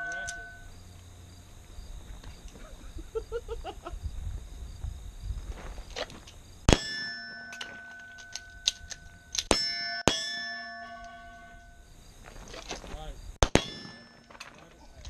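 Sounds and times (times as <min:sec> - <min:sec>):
metallic ringing: 0:00.0 - 0:00.9, 0:06.7 - 0:12.1, 0:13.4 - 0:15.0
loud pistol shots: 0:06.7 - 0:07.2, 0:13.4 - 0:14.3.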